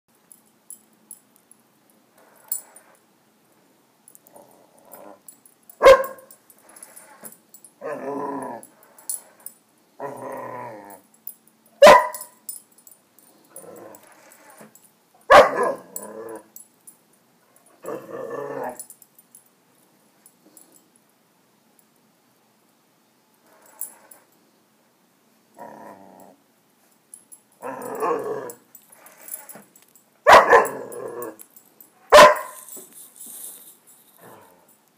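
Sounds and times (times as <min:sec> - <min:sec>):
dog growling and whining: 0:04.2 - 0:05.3, 0:06.6 - 0:09.4, 0:10.0 - 0:11.1, 0:13.5 - 0:14.7, 0:15.5 - 0:16.5, 0:17.8 - 0:18.9, 0:25.6 - 0:26.4, 0:27.6 - 0:29.6, 0:30.5 - 0:31.4, 0:34.2 - 0:34.7
dog barking: 0:05.8 - 0:06.3, 0:11.8 - 0:12.4, 0:15.3 - 0:15.9, 0:30.3 - 0:30.9, 0:32.1 - 0:32.7.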